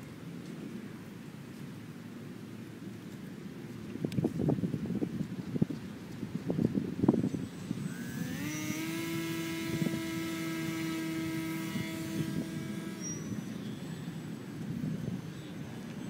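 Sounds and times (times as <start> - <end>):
electric motor high-pitched whine: 7.0 - 16.0.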